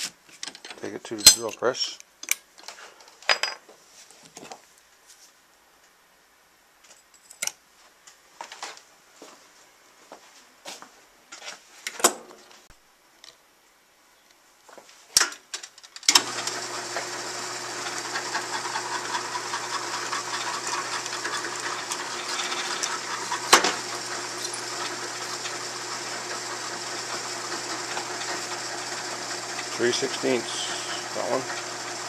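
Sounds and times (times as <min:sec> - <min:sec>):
drill press running: 0:16.1 - 0:32.0.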